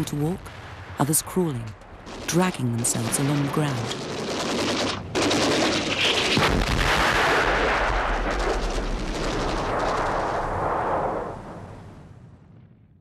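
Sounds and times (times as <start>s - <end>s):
deep rumble of artillery: 0.3s - 13.0s
rapid gunfire crackling: 2.0s - 10.6s.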